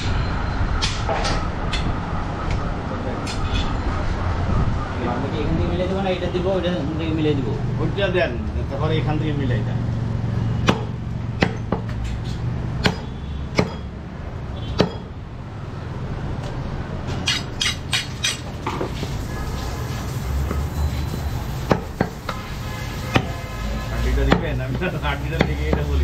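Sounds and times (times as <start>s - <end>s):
knife chopping on wooden block: 10.6s - 12.0s, 12.8s - 13.9s, 14.8s - 15.1s.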